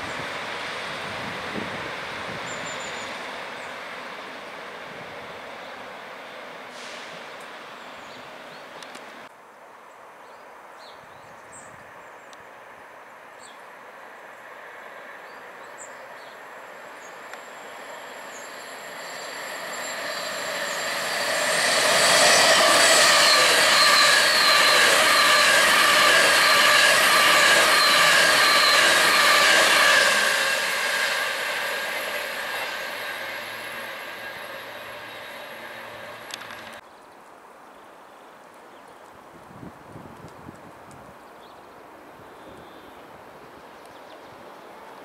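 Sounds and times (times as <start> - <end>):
train whine: 0.0 - 8.9, 14.2 - 36.8
train passing at speed: 0.0 - 9.3, 13.7 - 36.8.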